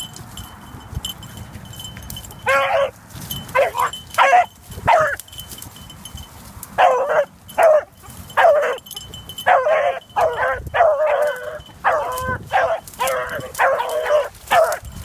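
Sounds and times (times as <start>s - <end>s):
beagles baying: 2.2s - 5.3s, 6.7s - 15.0s.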